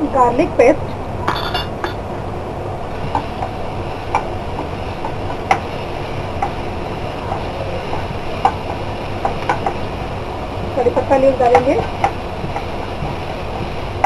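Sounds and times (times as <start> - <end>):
spatula tapping pan: 3.1 - 5.7, 7.3 - 9.8, 11.4 - 13.7.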